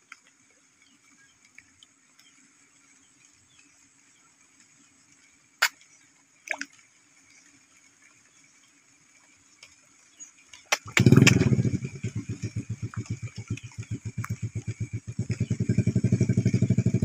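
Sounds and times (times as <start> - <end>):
sharp clicks: 10.5 - 15.5
small engine idling: 10.7 - 17.0.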